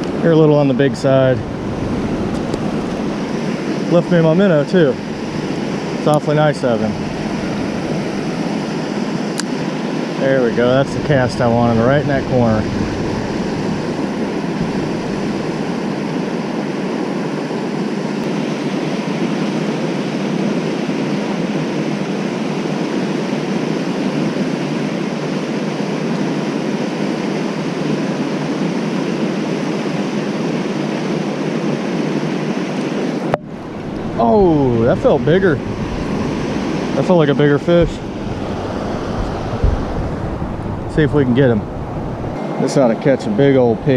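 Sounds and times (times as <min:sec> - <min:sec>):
water rushing over dam: 0:33.6 - 0:43.9.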